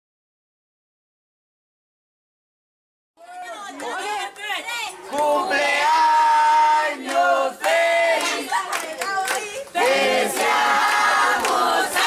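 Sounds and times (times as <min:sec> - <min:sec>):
group of people singing: 0:05.0 - 0:12.0.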